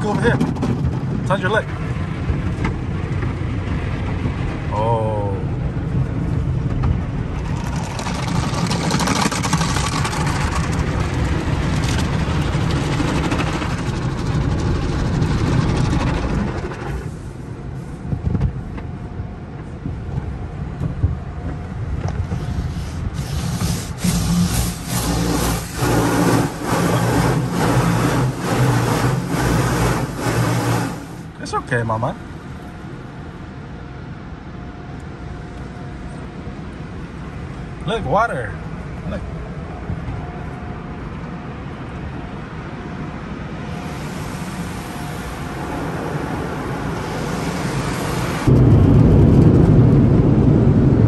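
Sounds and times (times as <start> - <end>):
low rumble: 0.0 - 37.8, 38.6 - 51.0
car wash spray rushing: 7.2 - 18.0, 22.4 - 31.8, 43.7 - 48.9.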